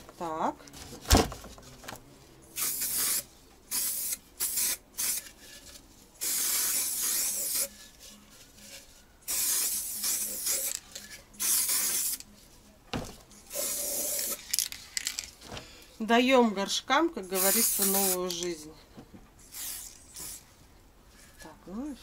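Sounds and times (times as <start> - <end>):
spray-paint can hissing: 2.6 - 5.4, 6.2 - 7.8, 9.2 - 12.2, 13.5 - 14.7, 17.4 - 18.4, 19.4 - 20.5.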